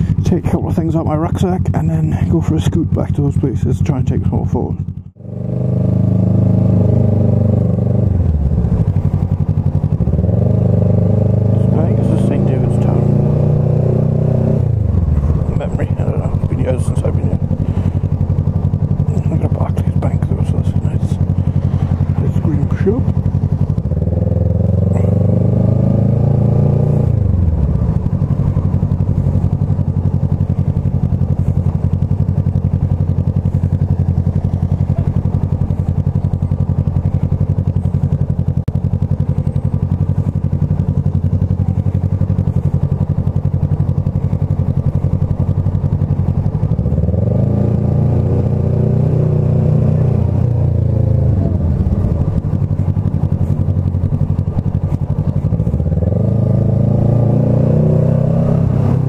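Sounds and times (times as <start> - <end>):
motorcycle engine at low revs: 0.0 - 59.0.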